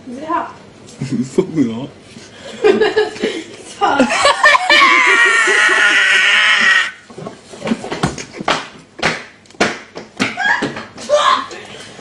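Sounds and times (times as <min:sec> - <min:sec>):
person laughing or shouting: 0:04.0 - 0:06.9.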